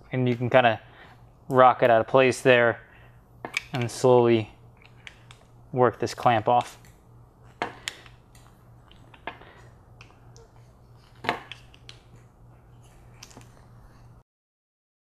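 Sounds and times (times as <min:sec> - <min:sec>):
faint steady hum: 0:00.0 - 0:14.2.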